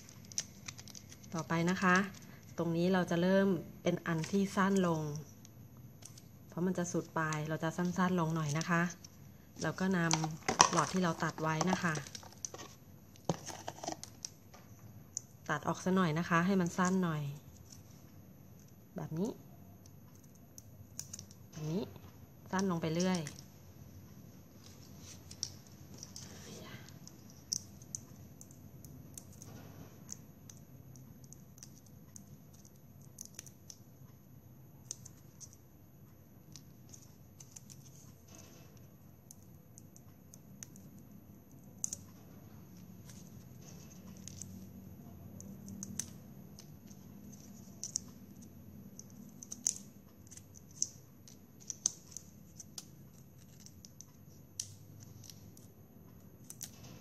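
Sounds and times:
scissors snipping plastic straws: 45.4 - 48.4, 49.0 - 55.7.

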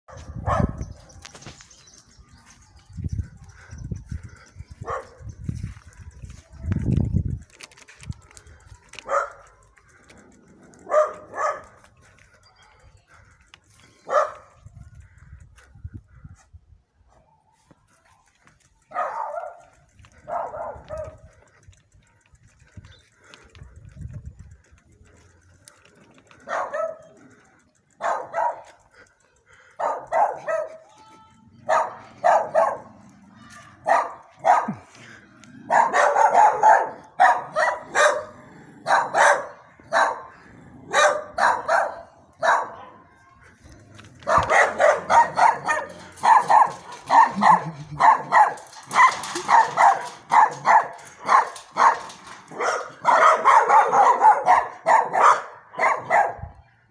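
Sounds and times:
dog barking: 0.1 - 0.9, 4.8 - 5.2, 9.0 - 9.5, 10.8 - 11.9, 14.1 - 14.6, 18.9 - 21.2, 26.4 - 27.1, 28.0 - 28.7, 29.8 - 30.8, 31.7 - 33.0, 33.8 - 34.8, 35.7 - 43.0, 44.2 - 56.5.

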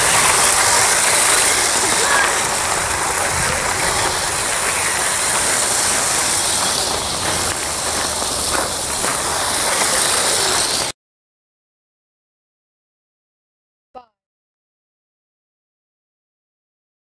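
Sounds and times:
toy trains running on track: 0.0 - 11.0.

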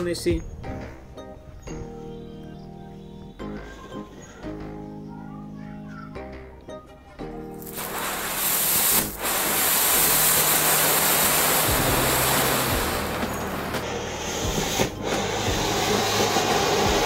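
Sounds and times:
firework fountain hissing: 7.6 - 17.0.

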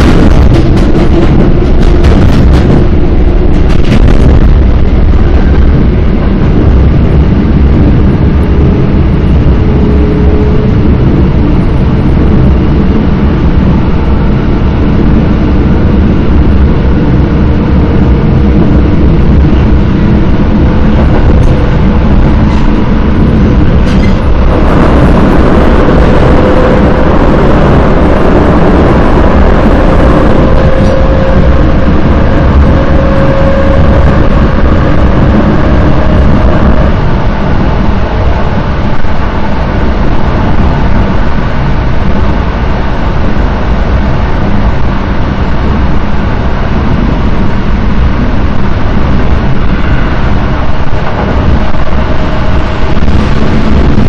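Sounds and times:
faint traction motor whine: 0.0 - 54.0
train wheels rumbling on rails: 0.0 - 54.0.

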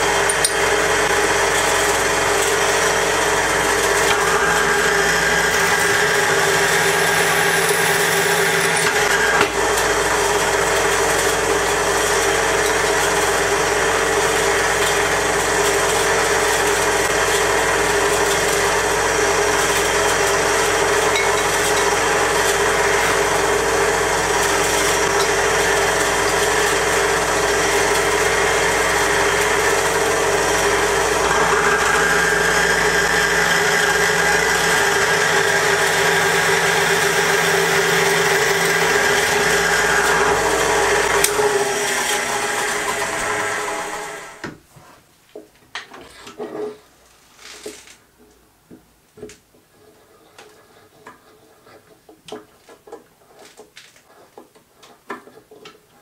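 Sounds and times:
drill bit cutting steel: 0.0 - 44.5
drill press running: 0.0 - 44.6.

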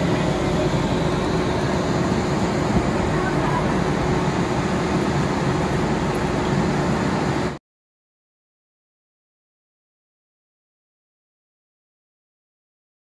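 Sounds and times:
crowd chatter: 0.0 - 4.2
low even rumble: 0.0 - 7.5.

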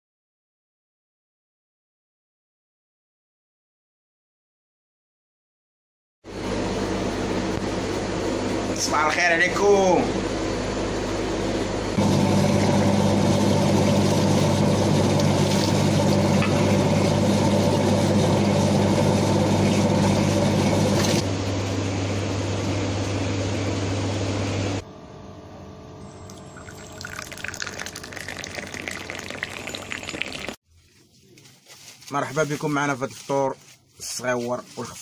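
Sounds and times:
water running: 12.0 - 21.2, 26.3 - 30.6
glass being rinsed: 26.3 - 30.6
tea pouring into glass: 26.3 - 30.6.

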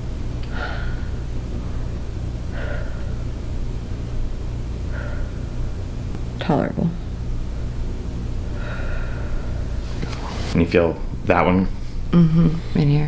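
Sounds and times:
steady low hum: 0.0 - 13.0
woman breathing slowly: 0.4 - 3.4, 4.8 - 5.8, 8.5 - 10.0.

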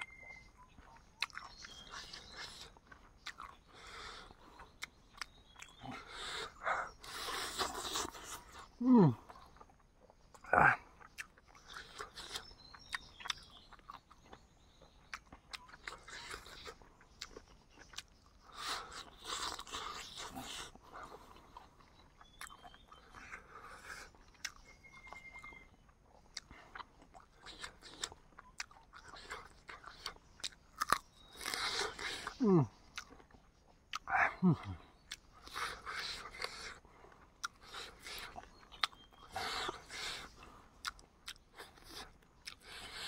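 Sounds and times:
person chewing chicken: 0.0 - 43.0.

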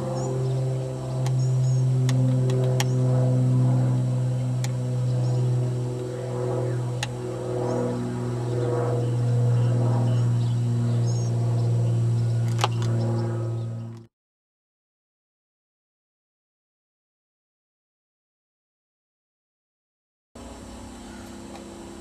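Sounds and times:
low drone music: 0.0 - 14.1.

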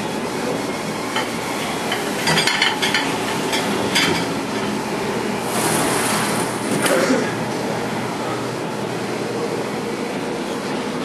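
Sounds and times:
plates clinking in dishwasher: 1.1 - 4.8.

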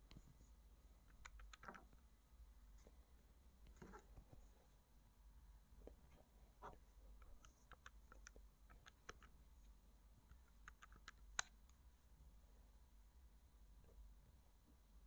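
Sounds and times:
faint keyboard typing: 1.0 - 2.1, 5.8 - 9.5, 10.2 - 11.8.

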